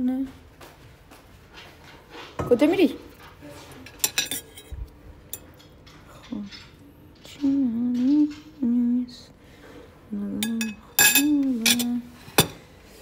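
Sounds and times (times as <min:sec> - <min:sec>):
fork clinking on ceramic plate: 0:03.9 - 0:04.7
person humming: 0:07.4 - 0:09.3.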